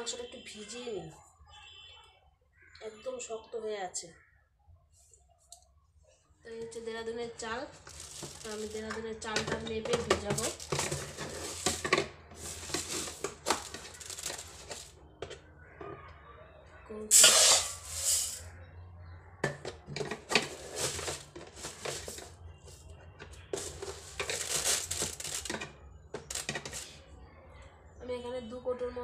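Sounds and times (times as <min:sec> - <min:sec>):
dry rice pouring into a bowl: 0:17.1 - 0:18.5.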